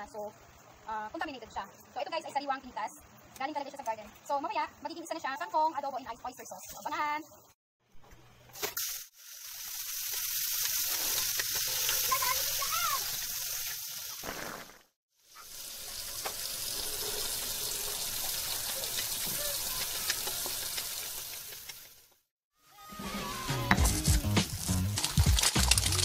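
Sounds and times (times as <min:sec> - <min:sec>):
food sizzling in hot oil: 0:08.5 - 0:22.1.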